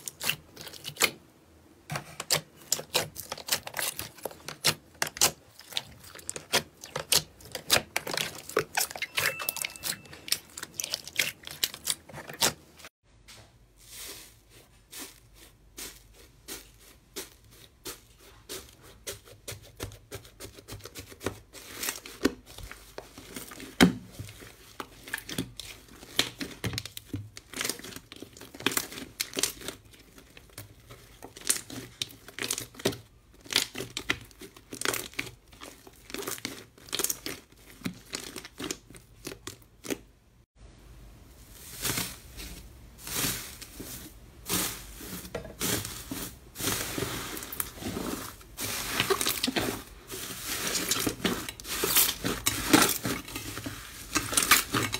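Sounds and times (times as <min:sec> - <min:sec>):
slime crackling and popping: 0:02.2 - 0:12.6, 0:23.2 - 0:40.1, 0:45.6 - 0:54.9.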